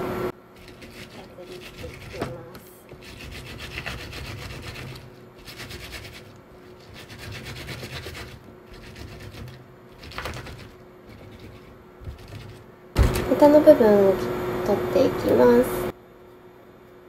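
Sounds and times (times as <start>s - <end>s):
gritty rubbing with salt: 0.6s - 12.7s.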